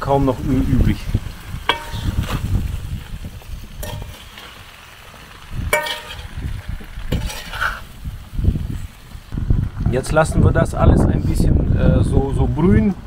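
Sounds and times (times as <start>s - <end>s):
vegetables frying in hot oil: 0.0s - 9.9s
metal utensil scraping a pan: 1.6s - 2.6s, 3.8s - 4.6s, 5.7s - 6.4s, 7.1s - 8.0s.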